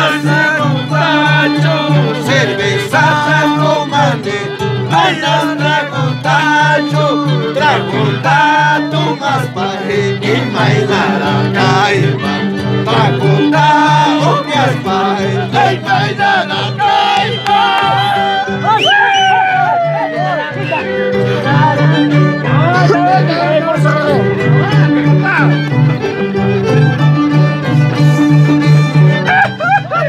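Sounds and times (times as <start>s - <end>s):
bowed violin melody: 0.0s - 30.0s
plucked harp bass notes: 10.1s - 18.8s, 19.4s - 30.0s.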